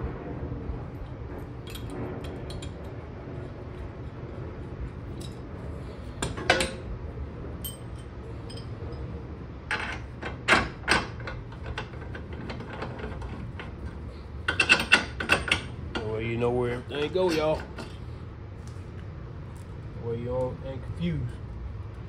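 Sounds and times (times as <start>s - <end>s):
steady low hum: 0.0s - 22.0s
metal bolts and wrench clinking: 14.5s - 16.2s, 16.9s - 18.0s.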